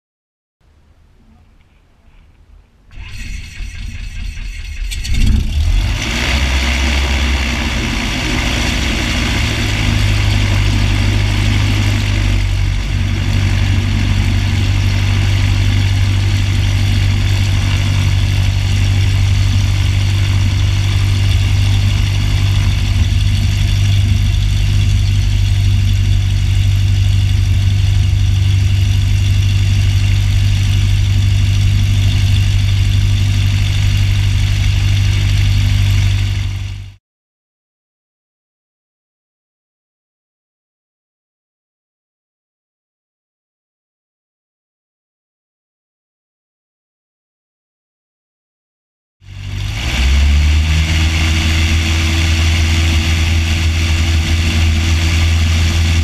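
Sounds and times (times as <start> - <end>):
starter turning engine over: 2.9 - 36.9
piston aircraft engine running: 2.9 - 37.0, 49.2 - 56.0.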